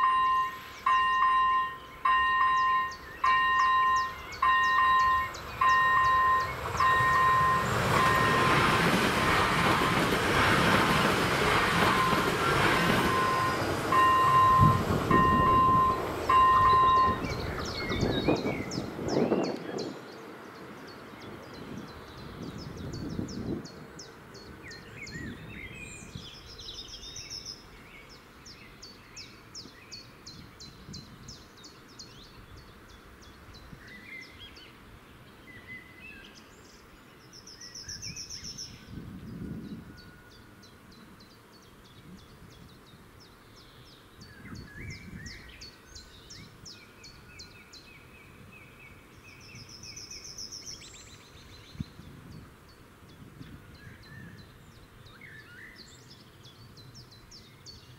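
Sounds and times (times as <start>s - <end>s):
birds singing: 0.0s - 57.9s
wind rumble on microphone: 3.8s - 27.3s, 29.6s - 34.7s, 37.8s - 41.2s, 41.8s - 43.3s, 44.1s - 50.1s, 50.8s - 55.2s.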